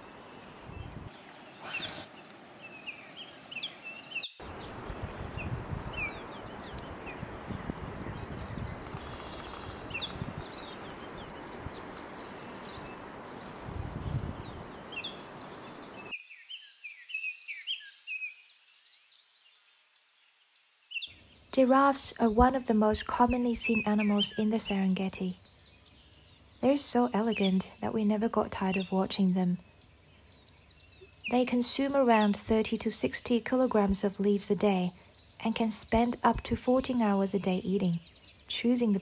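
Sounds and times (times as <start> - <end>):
high insect buzz: 0.0 - 16.2
small birds chirping: 0.0 - 39.0.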